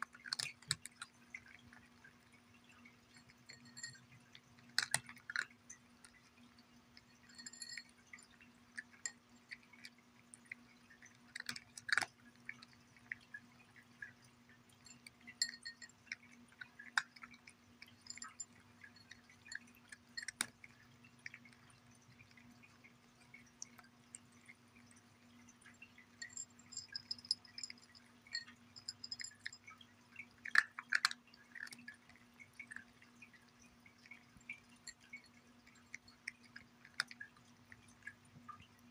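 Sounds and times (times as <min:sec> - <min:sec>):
cat crunching dry kibble: 0:00.0 - 0:03.5, 0:04.1 - 0:07.1, 0:08.5 - 0:23.8, 0:30.3 - 0:38.5
faint steady hum: 0:00.0 - 0:38.9
kibble clicking against dish: 0:00.0 - 0:38.9.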